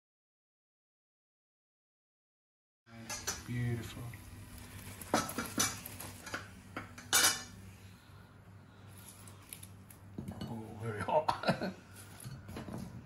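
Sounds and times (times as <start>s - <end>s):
steady low hum: 2.9s - 13.0s.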